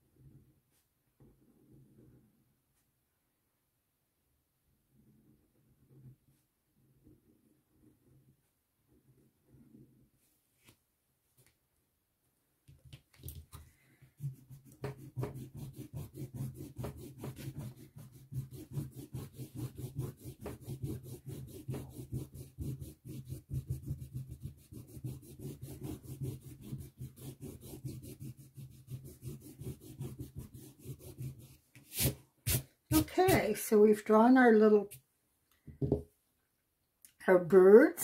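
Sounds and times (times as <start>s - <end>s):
eraser rubbing on paper: 14.2s - 33.6s.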